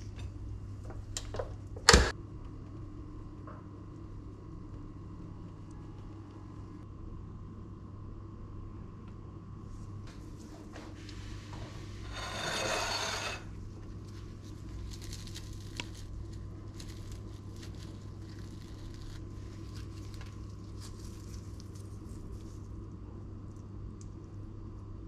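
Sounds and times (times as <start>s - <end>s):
toasted bread tearing: 14.0s - 22.9s.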